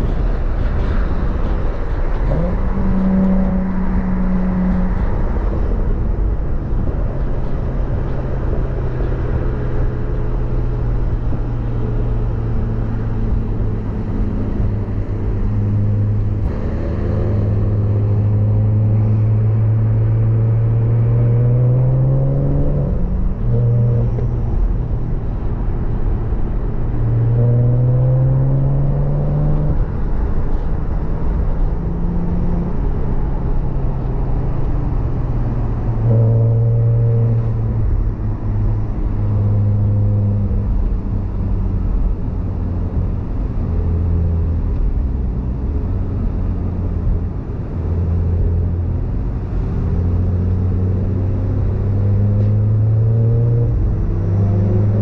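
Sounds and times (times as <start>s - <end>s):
steady rushing noise: 0.0s - 20.2s
car engine revving through gears: 0.0s - 24.9s, 25.6s - 55.0s.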